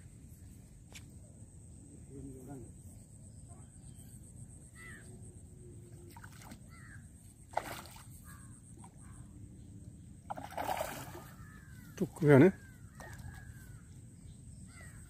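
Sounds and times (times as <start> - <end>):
crows cawing: 4.8 - 5.1, 6.7 - 7.0, 11.1 - 13.7, 14.7 - 15.0
fish splashing in water: 7.5 - 8.1, 10.3 - 11.6.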